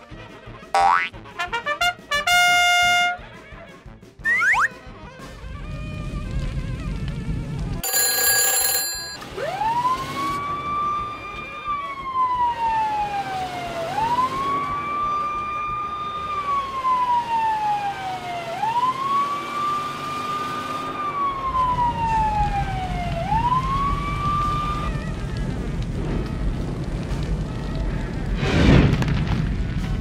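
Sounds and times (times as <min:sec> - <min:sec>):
telephone ringing: 0:07.8 - 0:09.5
fire engine siren wailing: 0:09.3 - 0:25.6.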